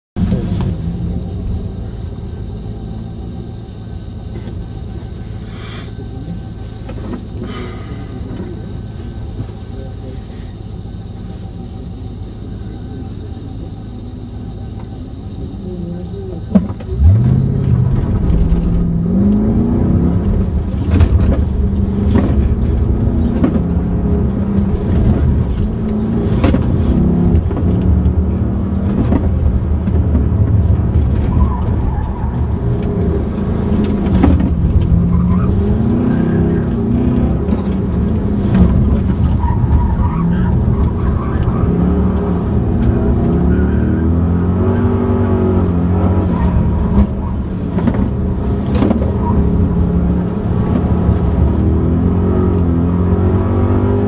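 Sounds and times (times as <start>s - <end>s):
car engine revving: 0.2s - 54.0s.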